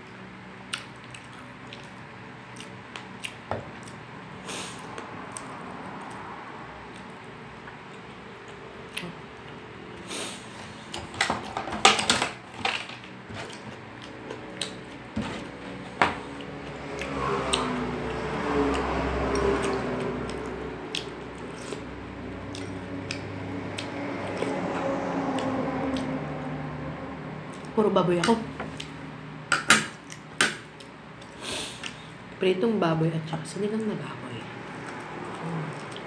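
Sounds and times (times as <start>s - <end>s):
wet chewing and smacking: 0.1s - 4.1s, 4.8s - 6.3s, 6.9s - 9.6s, 13.4s - 24.6s, 25.3s - 26.2s, 34.8s - 36.0s.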